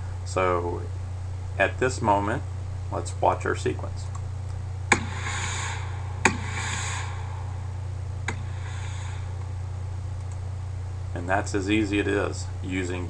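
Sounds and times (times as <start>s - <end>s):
steady low hum: 0.0s - 13.0s
hissing burst: 4.9s - 9.7s.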